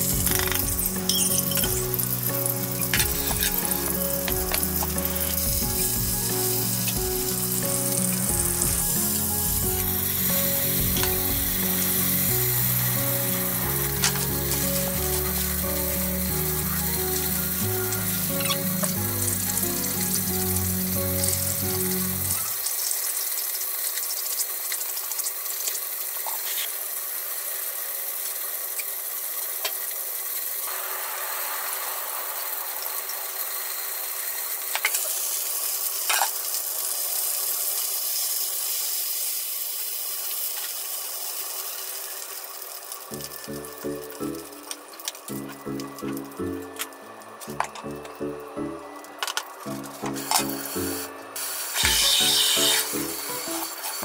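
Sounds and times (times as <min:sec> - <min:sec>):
background music: 0:00.0 - 0:22.6, 0:43.1 - 0:54.0
oil sizzling in frying pan: 0:00.0 - 0:48.2, 0:49.0 - 0:54.0.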